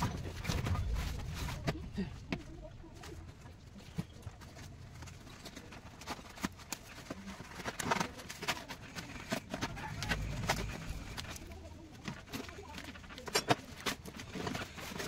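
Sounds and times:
low rumble of box handling: 7.2 - 15.0.

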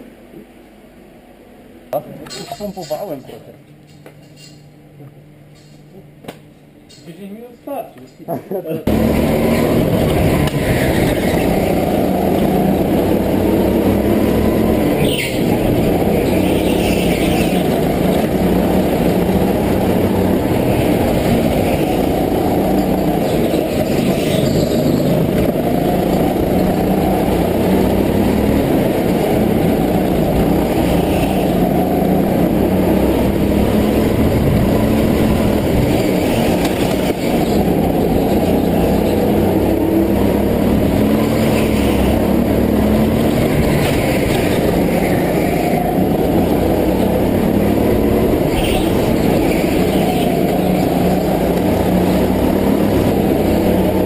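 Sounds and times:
go-kart engine running: 8.8 - 54.0.

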